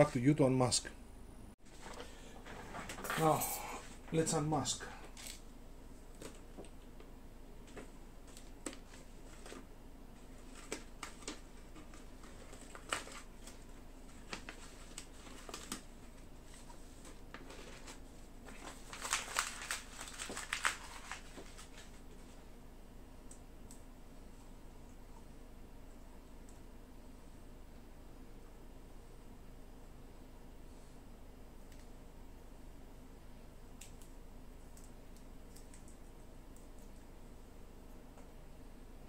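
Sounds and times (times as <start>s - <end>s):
paper crackling: 7.6s - 22.4s
tape and paper peeling off: 17.3s - 22.0s.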